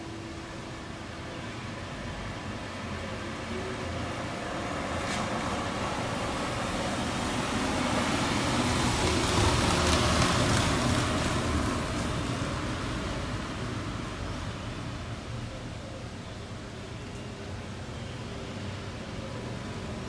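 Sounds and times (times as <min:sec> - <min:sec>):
vehicle passing on street: 0:01.3 - 0:15.3.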